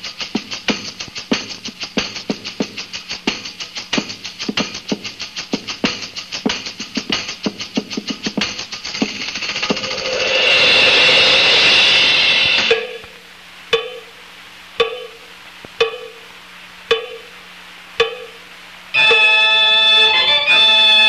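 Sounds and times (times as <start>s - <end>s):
faint steady hum: 0.0s - 21.0s
sharp ringing percussion strikes: 8.4s - 14.2s, 14.8s - 16.3s, 16.9s - 17.4s, 18.0s - 21.0s
loud noisy wash: 9.6s - 13.0s.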